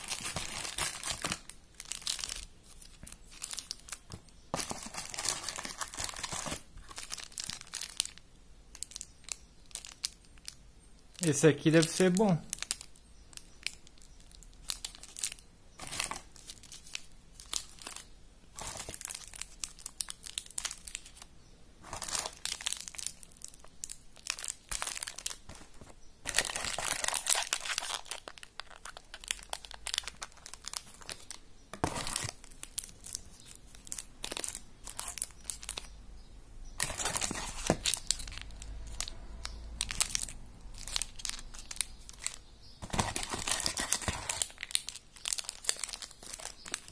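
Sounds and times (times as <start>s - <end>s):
candy wrappers crinkling: 0.0s - 35.9s, 36.8s - 46.9s.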